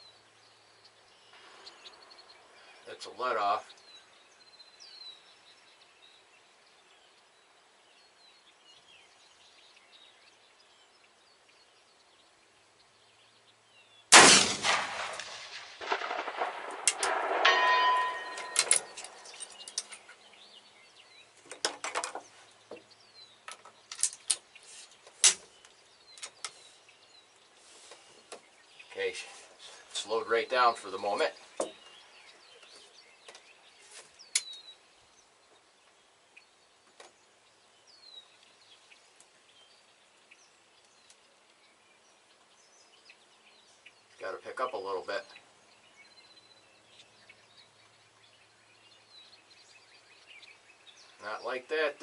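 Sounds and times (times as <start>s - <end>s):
rifle shot: 14.1s - 19.3s
short metallic ringing: 17.0s - 19.7s.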